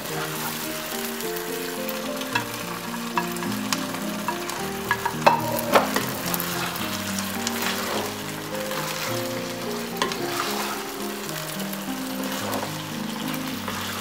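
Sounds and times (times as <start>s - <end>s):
sauce sizzling: 0.0s - 14.0s
soft background music: 0.0s - 14.0s
spatula scraping frying pan: 2.4s - 11.4s, 12.1s - 14.0s
spatula knocks: 3.2s - 6.2s.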